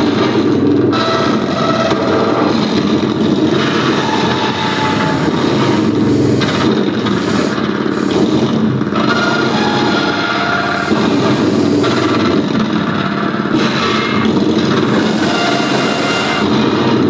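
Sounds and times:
rumbling electronic drone: 0.0 - 17.0
electronic hissing layer: 3.6 - 8.5, 10.6 - 12.2.

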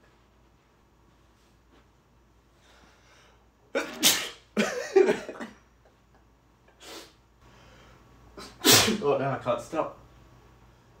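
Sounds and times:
man sneezing: 3.8 - 4.6, 8.4 - 9.1.

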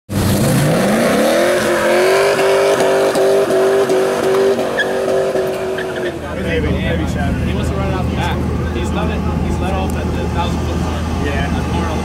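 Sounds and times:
car engine revving: 0.1 - 12.0
tires squealing: 0.2 - 12.0.

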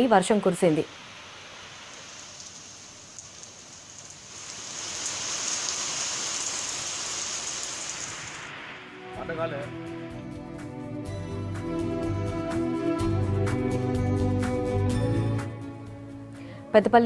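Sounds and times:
rain falling on wet ground: 0.7 - 8.9.

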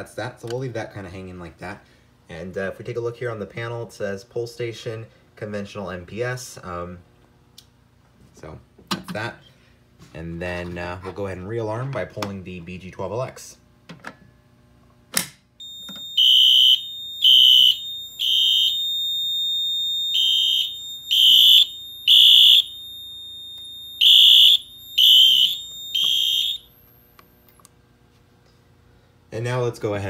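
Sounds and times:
fire alarm horn blasts: 15.6 - 26.8
steady high alarm tone: 15.6 - 27.0.

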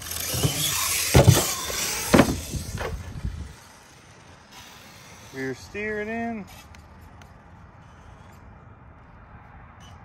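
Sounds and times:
toy truck tyres rushing: 0.0 - 8.8
sharp thumps: 0.2 - 3.0.

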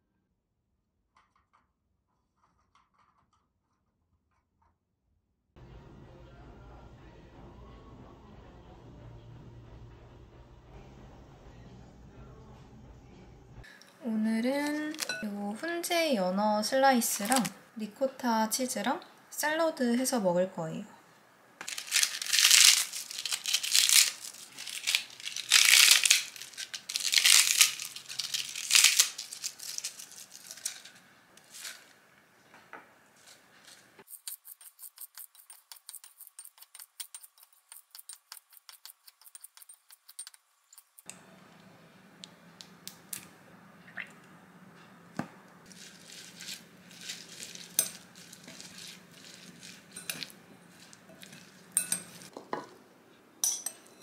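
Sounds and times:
crinkling and tearing: 17.2 - 17.6, 21.6 - 32.0, 45.7 - 52.3
scissors snipping lettuce: 34.1 - 41.0
tongs clinking on glass bowl: 47.0 - 52.3, 53.4 - 54.0.

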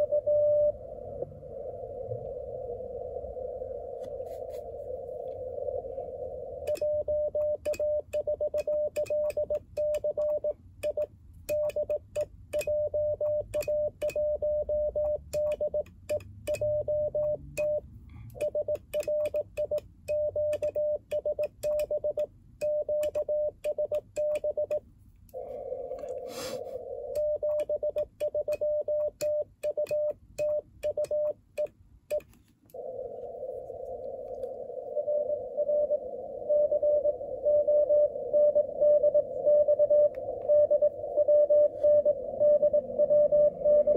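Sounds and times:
radio hiss: 0.0 - 7.2, 25.3 - 27.4, 32.8 - 43.9
morse code tone: 6.7 - 17.8, 18.4 - 24.8, 27.1 - 32.2, 35.0 - 43.9.

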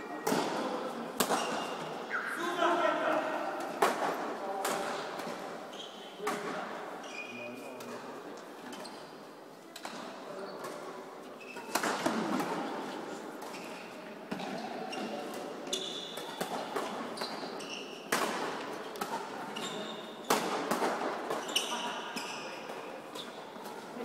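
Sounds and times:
racket hitting shuttlecock: 0.2 - 1.8, 11.5 - 12.8, 13.4 - 23.9
shoes squeaking on court: 5.7 - 6.2, 7.0 - 8.0, 10.4 - 12.0, 12.7 - 18.1, 18.7 - 20.5, 21.2 - 24.0.

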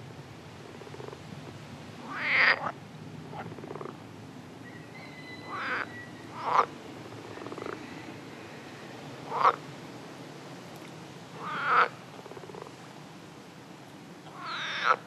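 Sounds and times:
frogs croaking: 0.6 - 9.7, 11.3 - 12.8, 14.2 - 15.0.

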